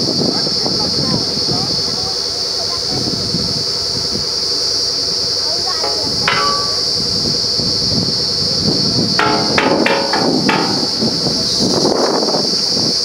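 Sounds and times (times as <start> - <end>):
steel pipe clanking: 5.8 - 7.6, 9.1 - 11.8.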